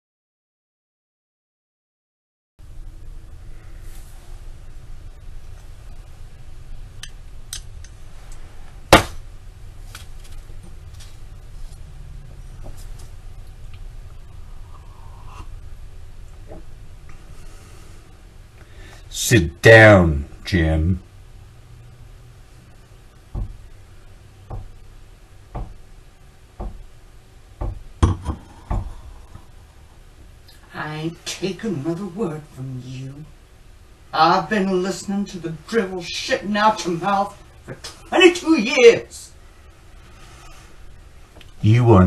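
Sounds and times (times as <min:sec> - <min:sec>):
knocks on hard surface: 0:23.3 - 0:23.6, 0:24.5 - 0:24.7, 0:25.5 - 0:25.8, 0:26.6 - 0:26.9, 0:27.6 - 0:29.0.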